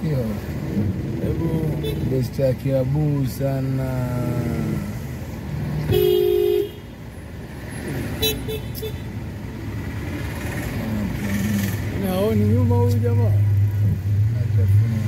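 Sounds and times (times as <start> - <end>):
road traffic noise: 0.0 - 15.0
vehicle horn honking: 5.9 - 6.8, 8.2 - 9.1.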